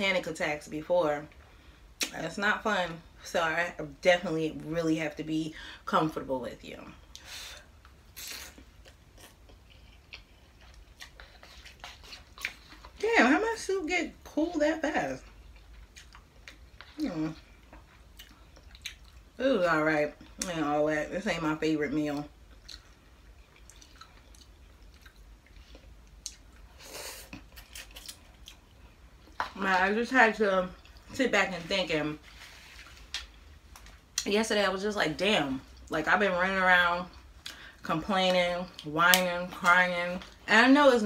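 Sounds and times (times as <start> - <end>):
quiet chewing: 7.1 - 13.0, 15.2 - 19.4, 22.1 - 29.6.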